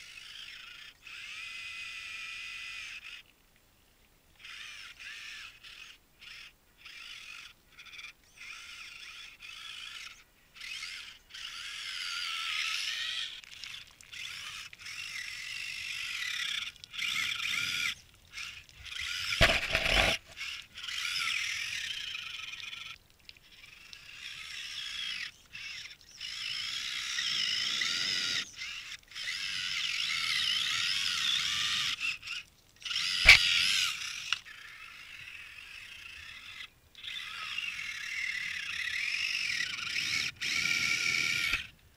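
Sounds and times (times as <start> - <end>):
electric motor and gears whining: 18.9 - 22.5, 32.8 - 41.7
sharp click: 19.4 - 20.4, 33.2 - 33.5.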